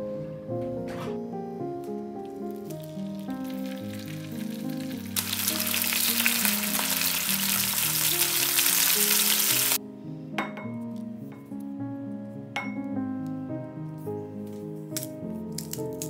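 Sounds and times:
meat sizzling in a frying pan: 2.6s - 9.8s.

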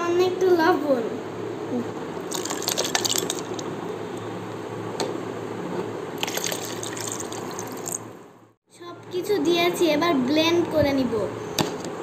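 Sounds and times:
liquid pouring onto ice: 2.3s - 3.6s, 6.2s - 8.1s
ice clicking and clinking: 2.3s - 3.7s, 6.2s - 8.0s.

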